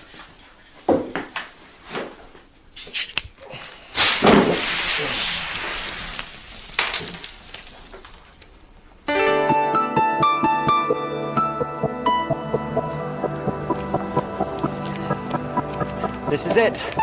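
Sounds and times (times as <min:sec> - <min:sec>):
fizzy drink bottle opening hiss: 0:02.8 - 0:03.2, 0:03.9 - 0:08.2.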